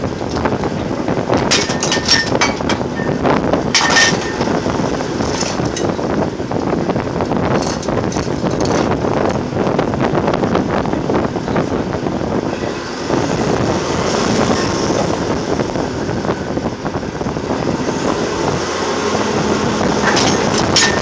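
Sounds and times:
machinery rumbling: 0:00.0 - 0:21.0
metal pipe clanks: 0:01.4 - 0:04.6, 0:20.0 - 0:21.0.

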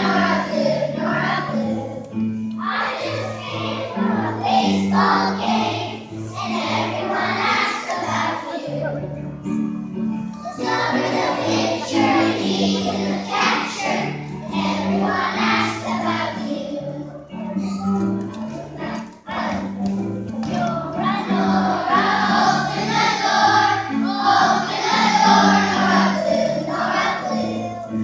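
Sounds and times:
children's choir singing: 0:00.0 - 0:09.6, 0:10.4 - 0:28.0
instrumental accompaniment: 0:00.0 - 0:28.0.

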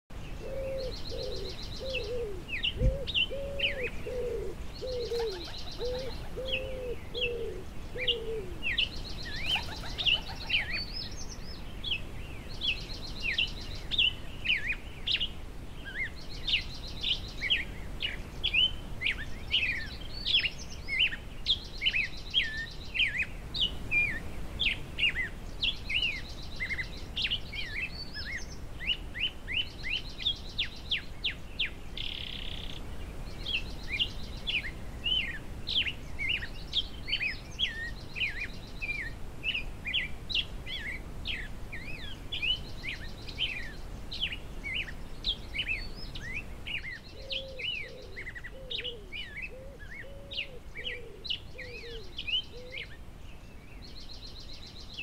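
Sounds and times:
songbirds chirping: 0:00.1 - 0:55.0
doves cooing: 0:00.4 - 0:08.8, 0:09.4 - 0:10.9, 0:47.1 - 0:52.9.

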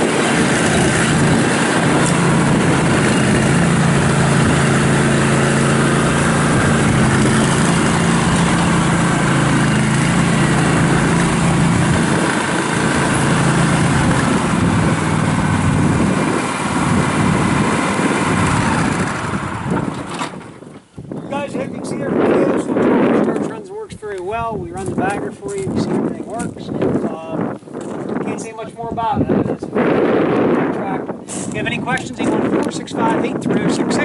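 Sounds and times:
tyres on gravel: 0:00.0 - 0:20.9, 0:23.2 - 0:28.5
tractor engine running: 0:00.0 - 0:21.6.

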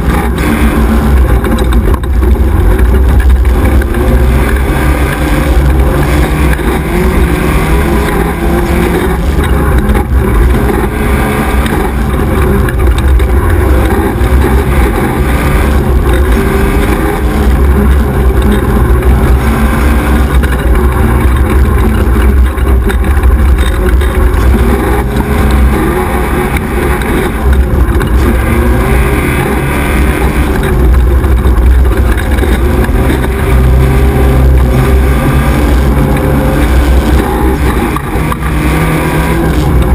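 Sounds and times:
buggy engine revving: 0:00.0 - 0:39.9
heavy low rumble: 0:00.0 - 0:39.9.

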